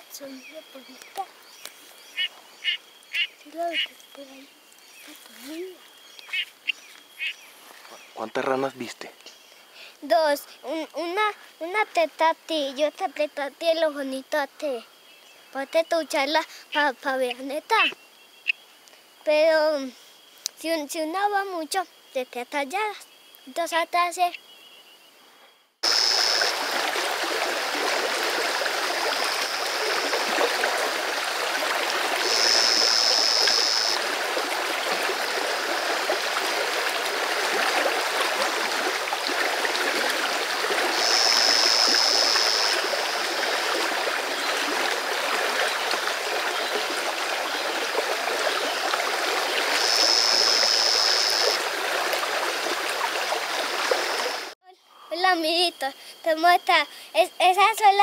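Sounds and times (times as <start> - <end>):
stream water running: 0.0 - 23.6, 25.8 - 54.6
high even-pitched call: 2.2 - 7.3, 32.2 - 34.0, 40.9 - 43.2, 49.8 - 51.6.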